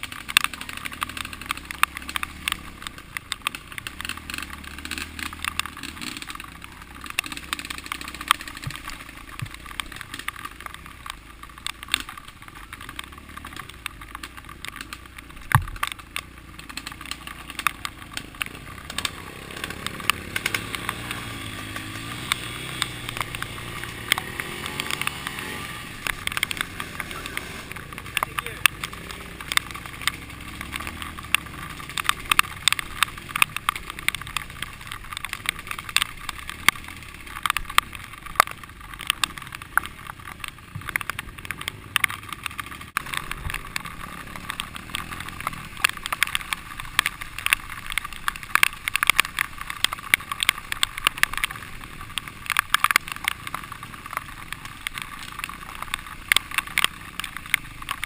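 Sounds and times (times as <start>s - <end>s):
clicks and knocks on camera: 0.0s - 58.0s
muffled dirt bike engine: 0.0s - 58.0s.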